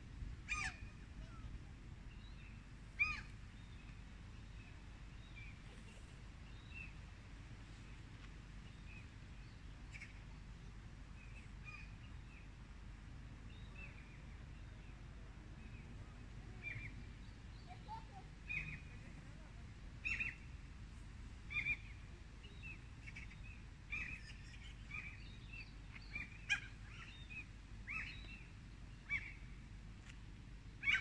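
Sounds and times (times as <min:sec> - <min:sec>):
faint outdoor background noise: 0:00.0 - 0:31.0
wild birds chirping: 0:16.6 - 0:19.2, 0:20.0 - 0:20.5, 0:21.5 - 0:29.6.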